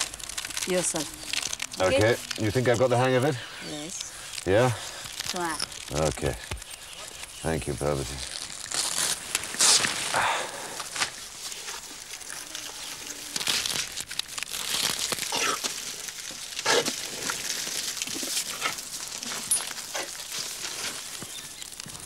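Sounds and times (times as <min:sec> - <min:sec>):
paper rustling and crinkling: 0:00.0 - 0:22.0.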